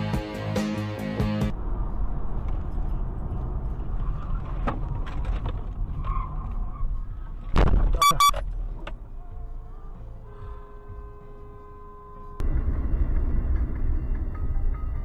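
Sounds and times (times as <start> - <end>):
car driving on highway: 1.4 - 15.0
car horn beeps: 8.0 - 8.4, 10.2 - 12.4.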